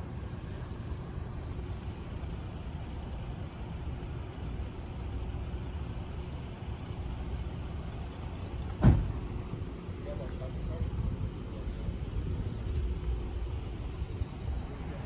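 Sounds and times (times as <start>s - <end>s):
vehicle engine rumbling: 0.0s - 15.0s
sharp thump: 8.7s - 9.2s.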